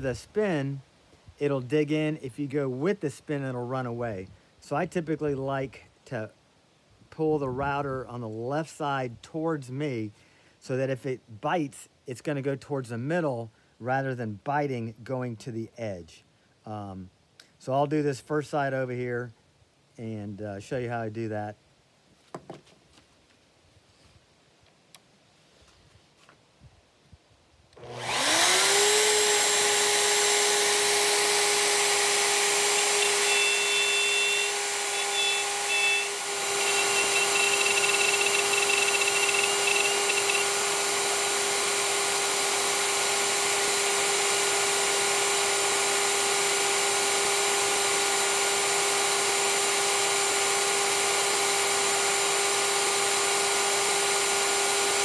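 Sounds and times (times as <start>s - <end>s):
router motor whining: 27.8s - 55.0s.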